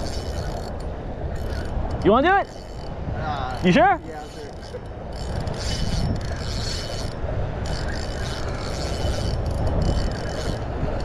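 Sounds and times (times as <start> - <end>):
fishing reel cranking: 0.0 - 11.0
wind rumble: 0.0 - 11.0.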